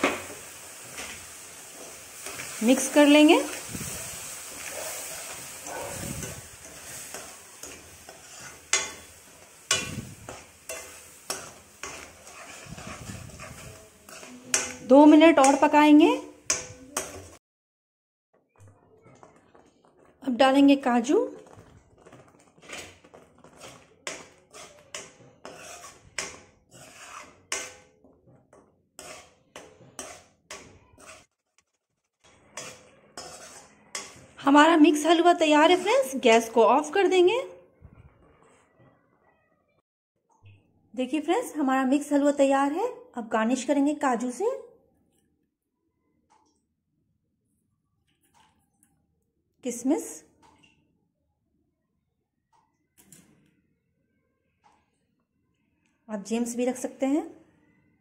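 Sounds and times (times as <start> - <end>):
low sizzle: 0.0 - 17.4, 20.0 - 37.3
metal spoon stirring in a pan: 0.0 - 17.4, 18.4 - 37.2.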